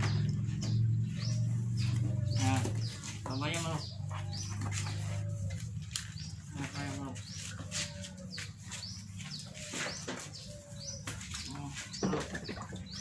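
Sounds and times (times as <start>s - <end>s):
low hum: 0.0s - 3.3s
birds chirping: 0.0s - 13.0s.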